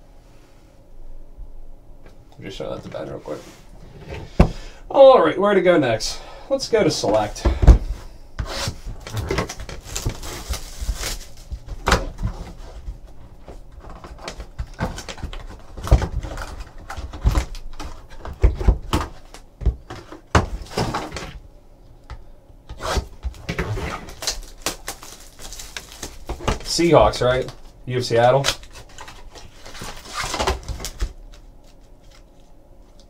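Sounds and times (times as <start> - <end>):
cardboard scraping: 7.8 - 19.3, 22.7 - 27.6, 28.4 - 31.2.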